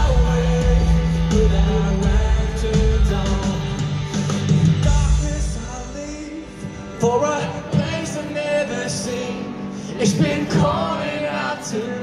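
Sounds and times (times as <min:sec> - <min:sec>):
heavy bass and drums: 0:00.0 - 0:06.3
person singing: 0:00.0 - 0:12.0
rock band playing live: 0:00.0 - 0:12.0.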